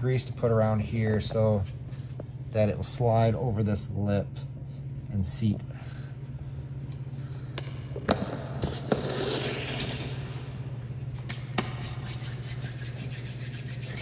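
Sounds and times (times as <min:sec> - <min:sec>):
greasy hands rubbing together: 0:11.3 - 0:14.0.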